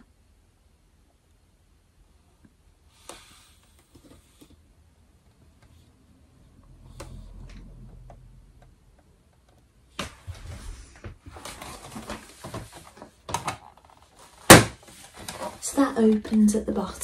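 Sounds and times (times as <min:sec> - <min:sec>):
faint low rumble: 0:04.6 - 0:11.4.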